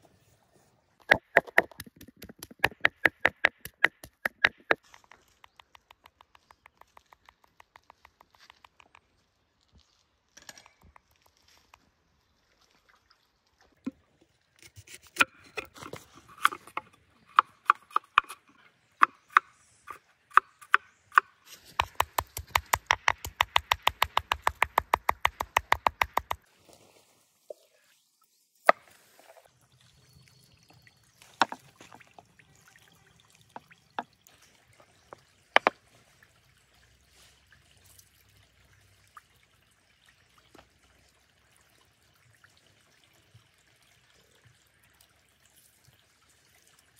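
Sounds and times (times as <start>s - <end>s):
cleaver chopping on wooden board: 20.3s - 26.4s.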